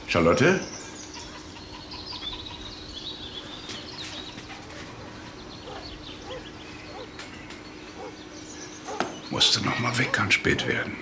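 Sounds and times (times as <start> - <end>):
low soft bird calls: 0.0 - 11.0
high bird chirps: 0.6 - 10.2.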